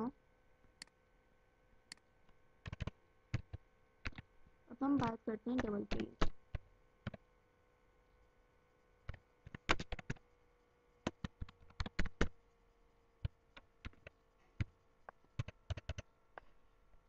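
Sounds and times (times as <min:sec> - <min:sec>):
typing on computer keyboard: 0:02.6 - 0:04.2, 0:05.0 - 0:07.2, 0:09.1 - 0:10.2, 0:11.0 - 0:12.3, 0:13.2 - 0:14.7, 0:15.4 - 0:16.1.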